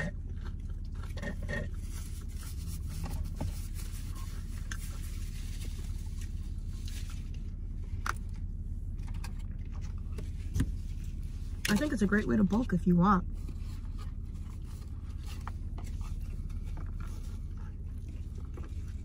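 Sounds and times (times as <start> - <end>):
low hum in car cabin: 0.0 - 19.0.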